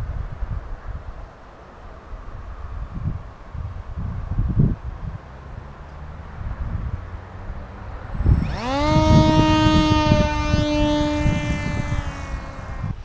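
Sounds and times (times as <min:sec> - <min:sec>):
wind rumble on microphone: 0:00.0 - 0:13.0
electric motor and propeller whine: 0:07.2 - 0:13.0.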